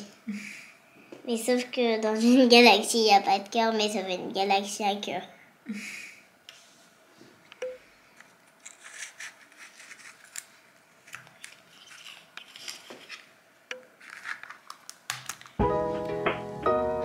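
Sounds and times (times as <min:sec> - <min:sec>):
plastic pots and lids clicking: 0:13.7 - 0:15.6
music with plucked notes: 0:15.6 - 0:17.0.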